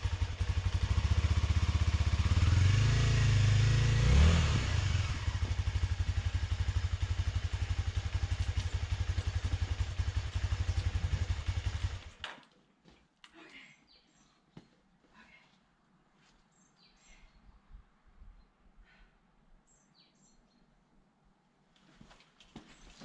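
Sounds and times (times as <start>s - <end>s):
motorcycle engine idling: 0.0s - 12.2s
motorcycle engine revving: 0.0s - 12.2s.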